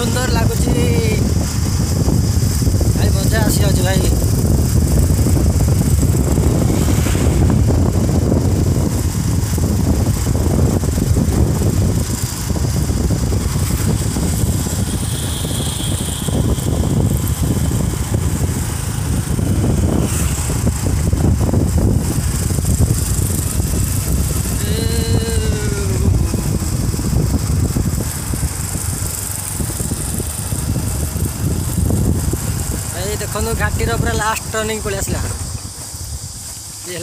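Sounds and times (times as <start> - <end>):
motorcycle tyre and road noise: 0.0 - 37.0
wind buffeting microphone: 0.0 - 37.0.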